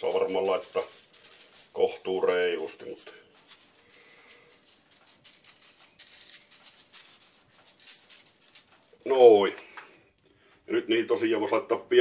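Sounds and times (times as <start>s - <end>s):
salt shaker rattle: 0.0s - 9.5s
salt grains pattering: 0.0s - 9.8s.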